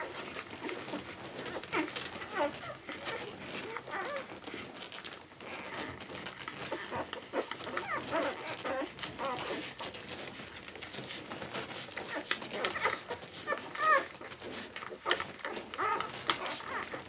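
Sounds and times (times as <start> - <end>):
puppies suckling: 0.0 - 17.0
puppy high squeaks: 7.4 - 9.7, 12.0 - 17.0.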